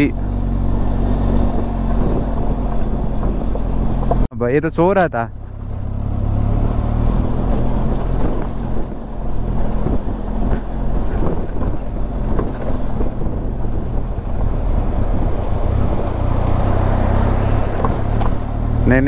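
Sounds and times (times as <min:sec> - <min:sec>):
wind buffeting microphone: 0:00.0 - 0:04.3, 0:05.5 - 0:18.8
vehicle engine running: 0:00.0 - 0:19.0
small knocks and rattles: 0:09.4 - 0:13.3.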